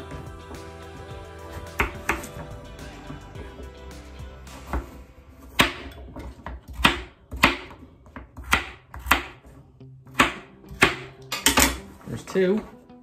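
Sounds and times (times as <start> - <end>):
knife chopping on cutting board: 4.7 - 9.5, 10.1 - 11.8.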